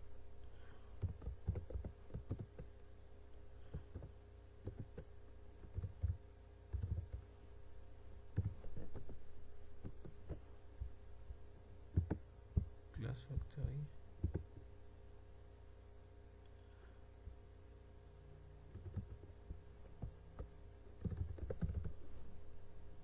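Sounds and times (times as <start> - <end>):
low electrical hum: 0.0 - 23.0
keyboard typing: 1.0 - 2.8, 3.7 - 7.3, 8.3 - 9.2, 9.8 - 10.4, 11.9 - 12.7, 14.2 - 14.5, 18.7 - 19.3, 19.9 - 22.0.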